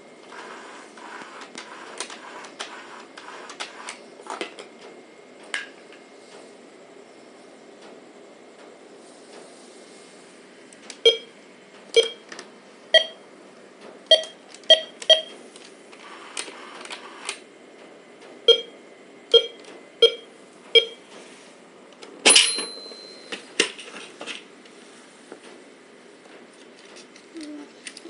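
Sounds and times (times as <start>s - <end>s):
toy cash register beeps: 20.8s - 21.0s
clatter with ringing tone: 22.3s - 23.5s.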